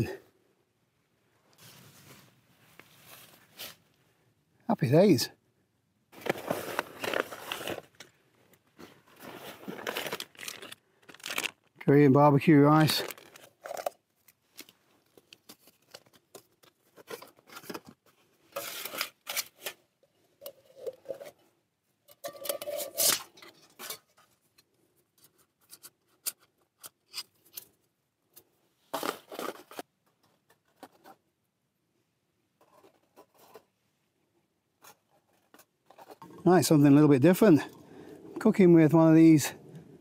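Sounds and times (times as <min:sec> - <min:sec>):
food pouch rustling open: 0:06.2 - 0:08.2, 0:09.1 - 0:11.8, 0:12.8 - 0:18.0
metal stove parts scraping and clicking: 0:22.1 - 0:27.7.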